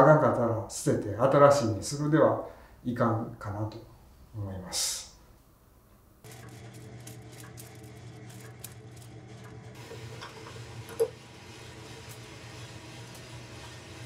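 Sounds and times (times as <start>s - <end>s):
coffee roaster humming: 6.2s - 14.0s.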